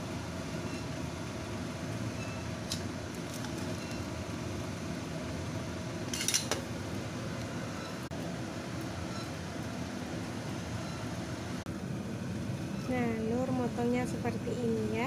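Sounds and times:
metal tongs clinking against wok: 6.1s - 6.6s.

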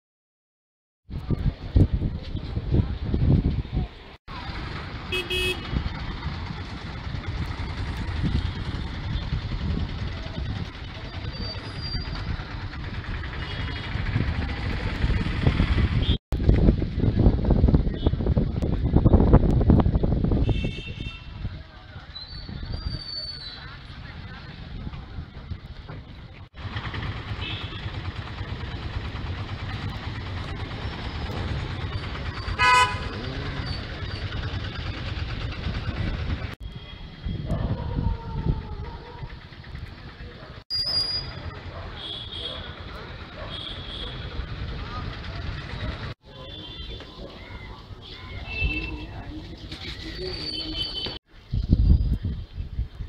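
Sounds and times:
vehicle engines rumbling: 1.1s - 53.0s
vehicle horn toot: 5.1s - 5.8s, 20.4s - 21.3s, 27.4s - 27.9s, 32.6s - 33.3s, 42.0s - 42.6s, 43.5s - 44.2s.

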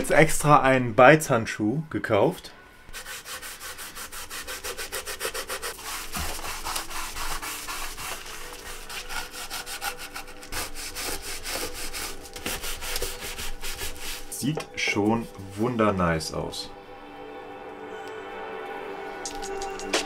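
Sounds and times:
glove rubbing on wood: 2.9s - 14.5s.

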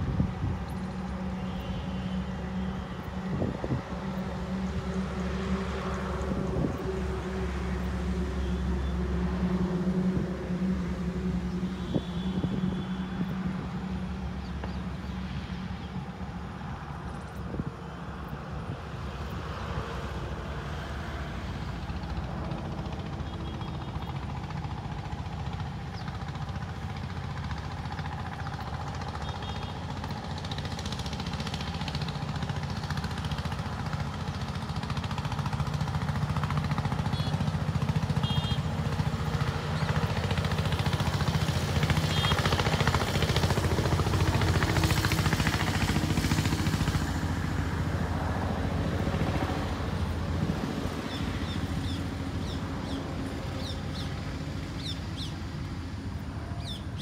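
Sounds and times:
bird chirps: 56.6s - 57.0s.

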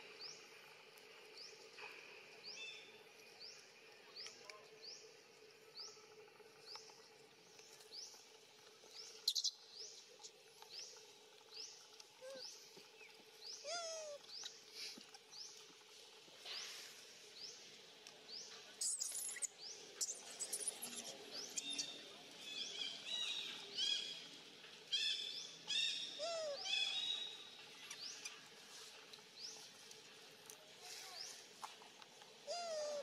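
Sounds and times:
birds chirping: 18.3s - 24.2s, 32.5s - 33.0s.

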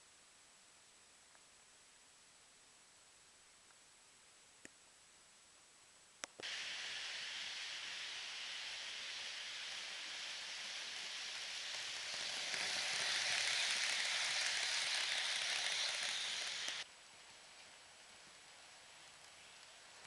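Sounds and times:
faint hiss: 0.0s - 20.0s
model train wheels clattering: 6.7s - 16.9s.

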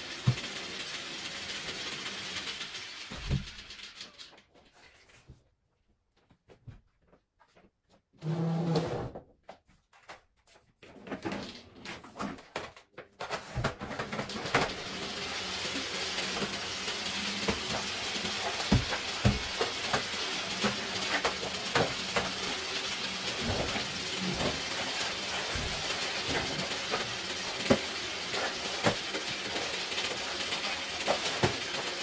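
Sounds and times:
vacuum cleaner running: 0.0s - 3.6s, 13.6s - 32.0s.

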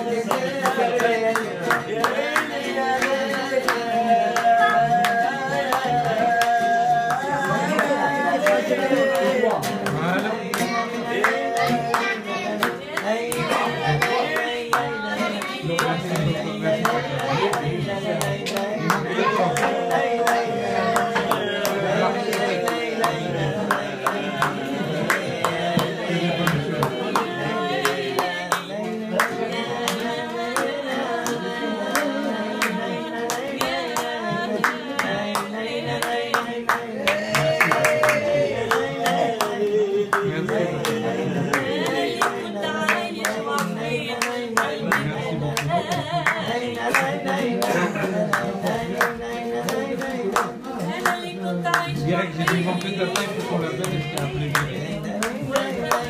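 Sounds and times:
person singing: 0.0s - 56.0s
rhythmic hand-clapping: 0.0s - 56.0s.

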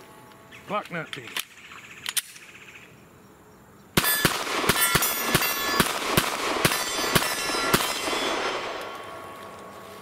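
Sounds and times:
pistol shots: 4.0s - 9.4s
steel targets ringing: 4.0s - 9.7s.

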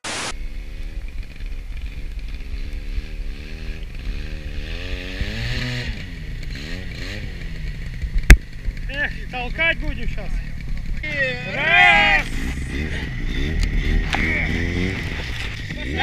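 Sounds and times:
static hiss: 0.0s - 0.4s
snowmobile engine revving: 1.8s - 16.0s.

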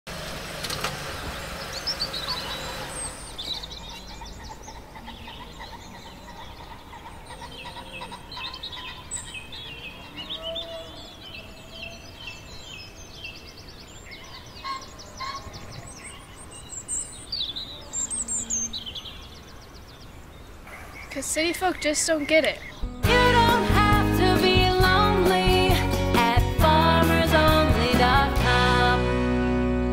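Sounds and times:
small birds chirping: 0.3s - 23.0s.

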